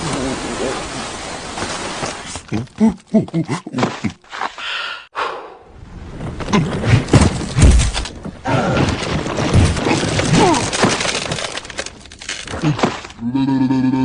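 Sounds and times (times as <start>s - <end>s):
cartoon skis sliding on snow: 0.0s - 2.6s.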